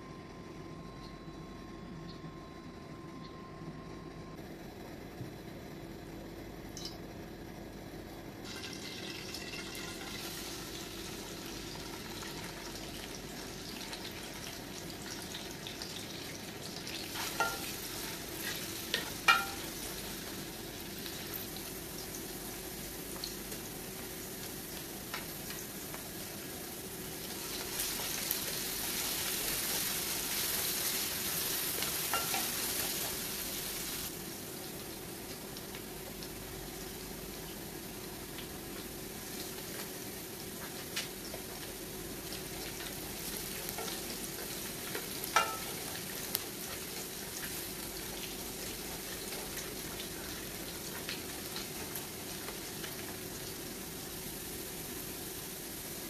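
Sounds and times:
onions sizzling in oil: 8.4 - 56.0.

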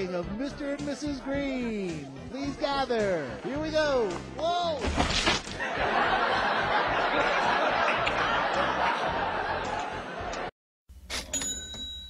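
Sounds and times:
crowd crying out and laughing: 5.6 - 10.5.

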